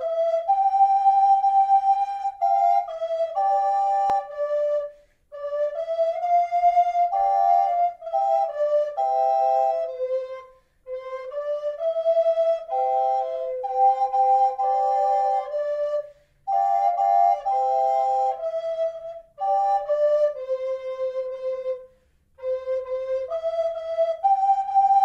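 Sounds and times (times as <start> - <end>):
flutes playing melody: 0.0 - 25.0.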